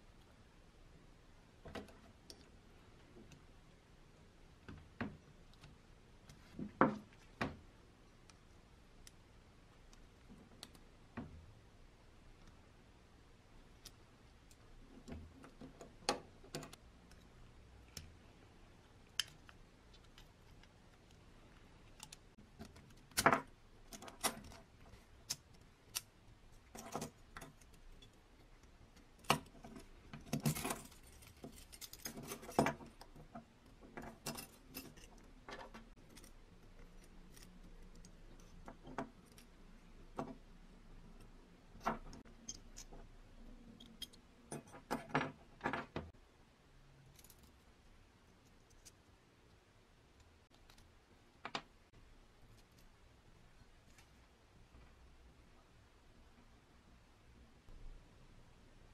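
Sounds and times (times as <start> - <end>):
metal parts clicking and clinking: 29.6 - 33.1.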